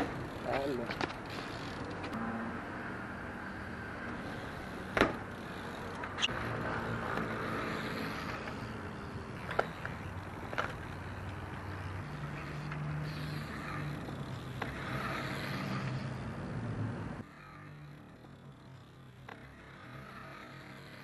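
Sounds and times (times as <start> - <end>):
vehicle engine humming: 0.0 - 21.0.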